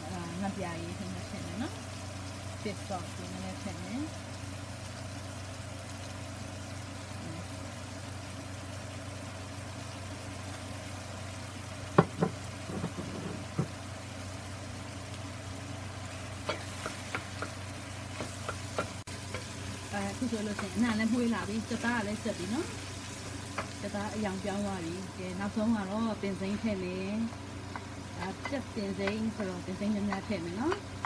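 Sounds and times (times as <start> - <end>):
meat frying in a skillet: 0.0 - 31.0
wooden spoon scraping a pan: 12.7 - 13.7.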